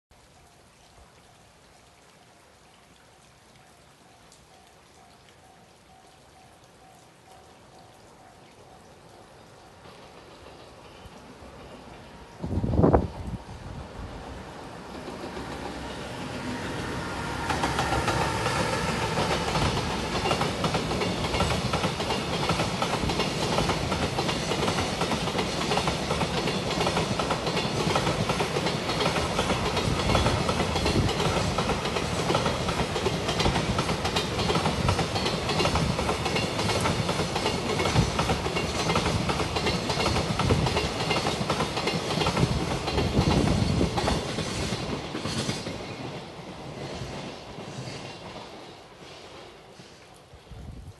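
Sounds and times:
freight train rumbling past: 9.6s - 50.8s
wheels clacking over rail joints: 14.7s - 48.9s.

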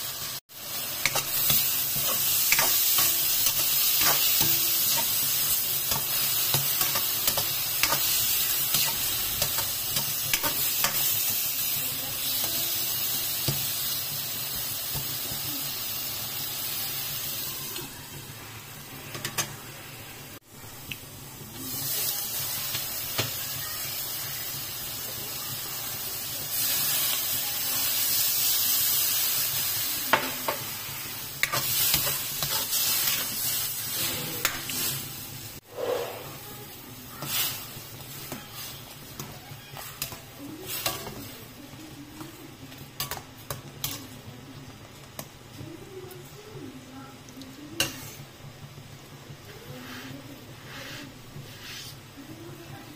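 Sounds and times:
water hissing in a hot pan: 0.0s - 19.0s, 20.3s - 42.0s
shrimp sizzling in a wok: 0.0s - 47.0s, 47.6s - 52.9s
spatula scraping a wok: 31.5s - 36.5s, 49.8s - 52.1s.

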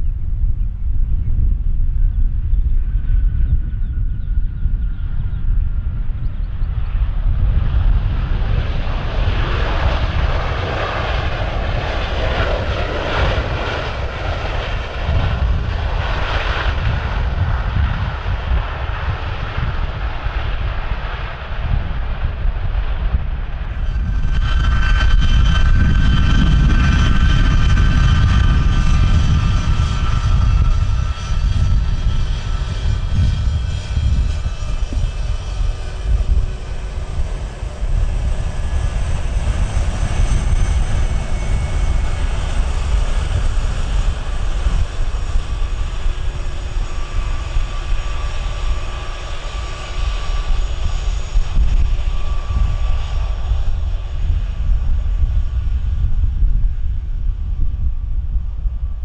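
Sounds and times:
airliner engines rumbling and whining: 0.0s - 59.0s.

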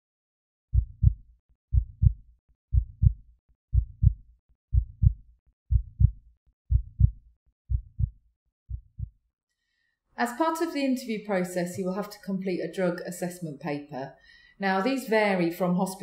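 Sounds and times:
heartbeat thumps: 0.7s - 9.2s.

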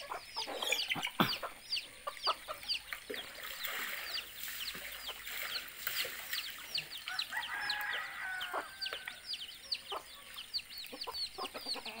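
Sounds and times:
chicks peeping: 0.0s - 5.7s, 6.4s - 12.0s
chickens clucking: 0.0s - 12.0s
rooster crowing: 7.1s - 9.2s.

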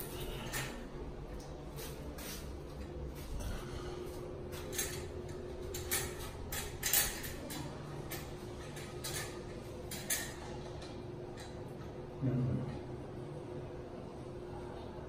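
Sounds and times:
faint steady hum: 0.0s - 15.0s
metal and glass parts clinking: 4.6s - 10.5s.

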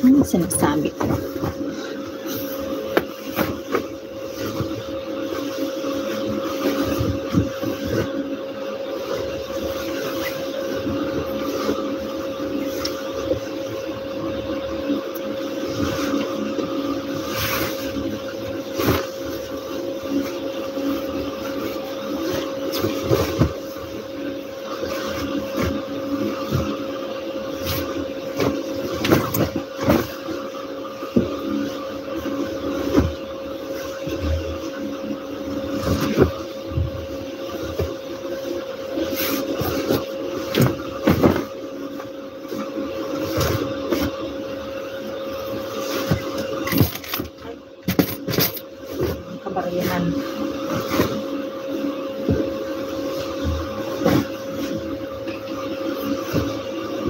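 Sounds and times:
steady motor hum: 0.0s - 57.0s
bed sheets rustling and flapping: 0.5s - 8.2s, 52.3s - 55.0s.

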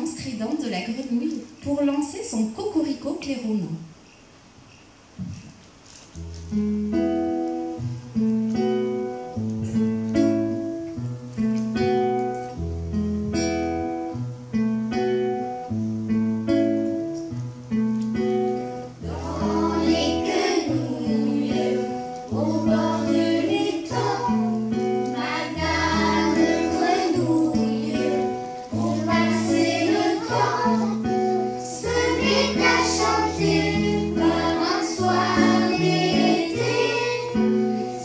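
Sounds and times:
acoustic guitar plucking: 6.2s - 38.0s
group of voices singing: 19.0s - 38.0s.

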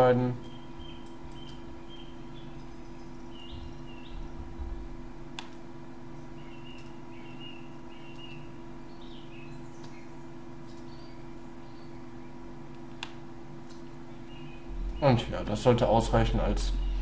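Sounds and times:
electrical hum: 0.0s - 17.0s
low rumble: 3.5s - 5.2s, 14.6s - 17.0s.

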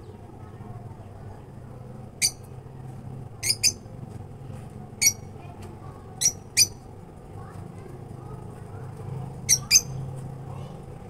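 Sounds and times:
low background hum: 0.0s - 11.0s
bird shrill squawks: 3.4s - 3.8s, 5.0s - 5.2s, 6.2s - 6.8s, 9.5s - 10.0s.

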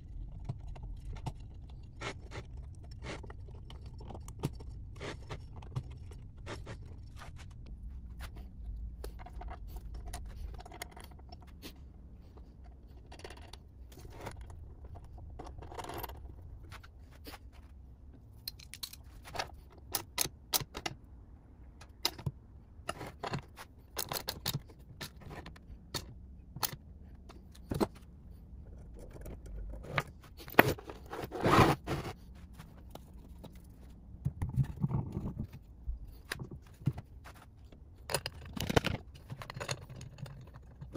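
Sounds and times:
metal tools clicking and scraping: 18.4s - 21.0s, 21.8s - 27.9s, 38.0s - 40.9s.

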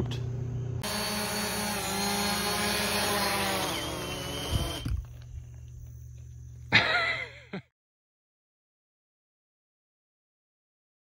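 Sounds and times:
drone propellers whining: 0.8s - 5.2s.

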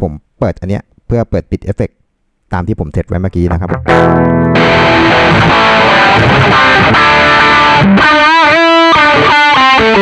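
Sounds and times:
distorted electric guitar chord: 3.6s - 10.0s.

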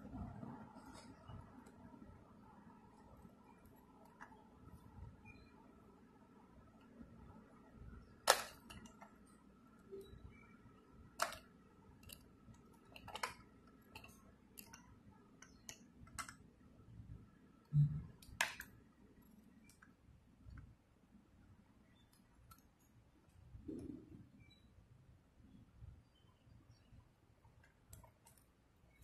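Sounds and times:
toy plastic clicking: 8.2s - 9.2s, 11.1s - 16.4s.

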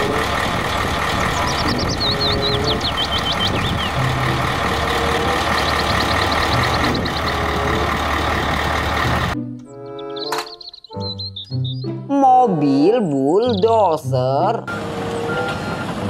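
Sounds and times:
truck diesel engine running: 0.0s - 11.4s, 14.7s - 16.0s
quick high chirps: 9.8s - 12.0s.

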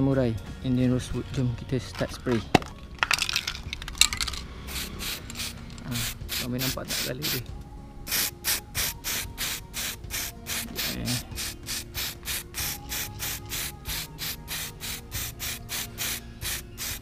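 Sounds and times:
spray paint can hissing: 4.2s - 7.4s, 8.1s - 17.0s.

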